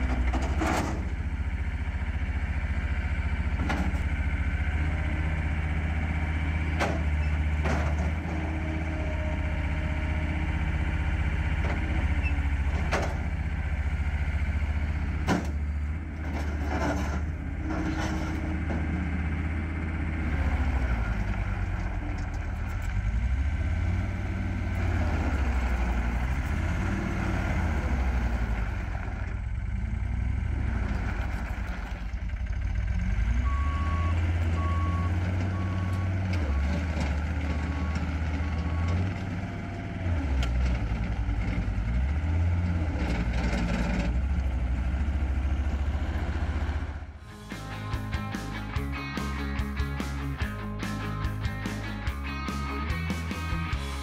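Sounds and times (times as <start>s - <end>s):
diesel engine running hard: 0.0s - 54.0s
reversing alarm beeps: 33.5s - 36.2s.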